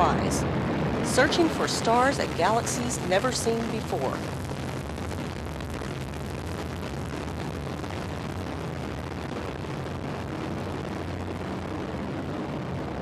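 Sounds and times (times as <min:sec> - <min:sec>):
rocket engine roar: 0:00.0 - 0:13.0.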